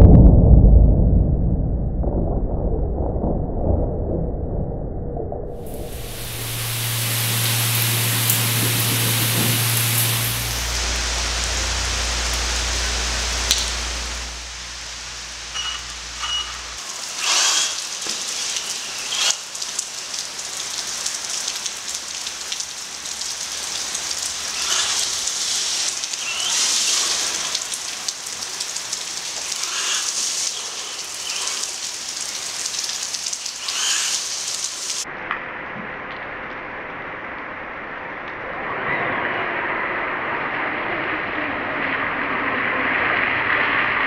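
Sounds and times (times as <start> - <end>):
heavy rain on asphalt: 5.6 - 35.1.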